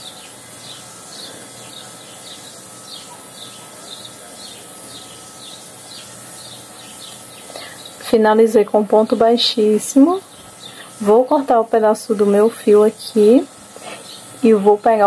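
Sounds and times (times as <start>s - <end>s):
bird chirping: 0.0s - 8.2s, 10.0s - 11.6s, 14.0s - 14.4s
steady hiss: 0.0s - 15.0s.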